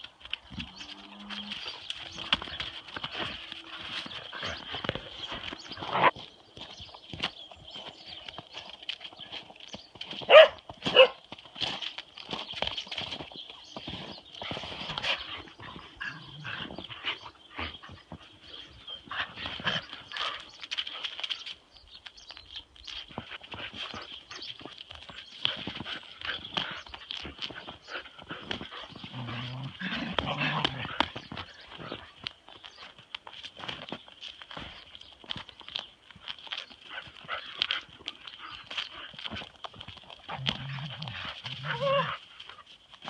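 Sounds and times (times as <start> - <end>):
hooves and paws on wet tarmac: 0.0 - 43.0.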